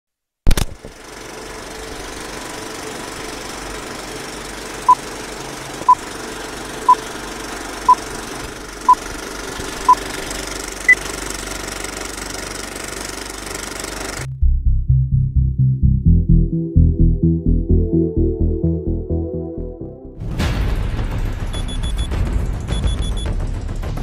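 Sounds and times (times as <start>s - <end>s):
film projector clattering: 0.6s - 14.3s
higher-pitched beep: 21.6s - 22.1s, 22.7s - 23.3s
short beeps: 21.6s - 22.1s, 22.7s - 23.3s.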